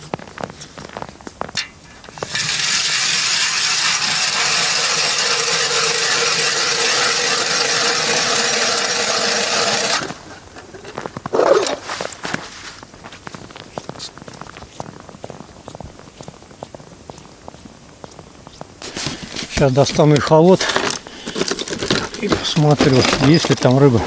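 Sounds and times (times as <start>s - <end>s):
footsteps on snow: 0.0s - 2.4s, 10.1s - 21.3s
ice auger drilling: 2.0s - 12.0s, 20.2s - 23.6s.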